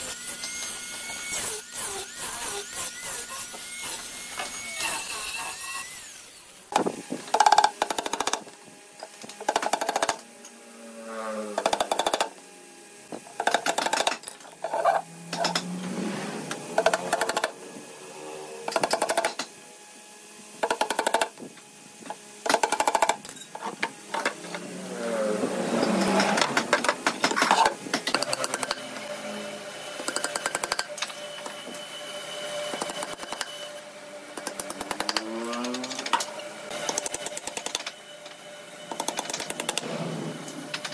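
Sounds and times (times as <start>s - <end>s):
angle grinder whining: 0.0s - 40.9s
hammer driving nails into wood: 34.4s - 36.2s.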